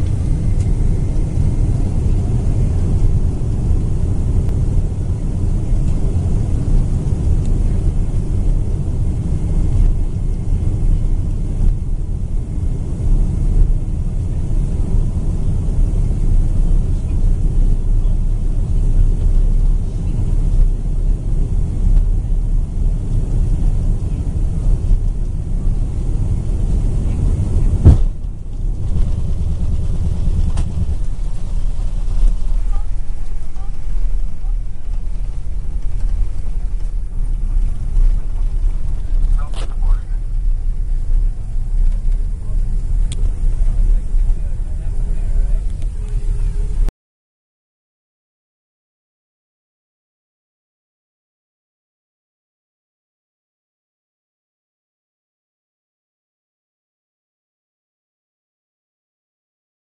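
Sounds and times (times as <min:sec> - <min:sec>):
jet engines rumbling in cabin: 0:00.0 - 0:46.9
sharp thump: 0:27.8 - 0:29.3.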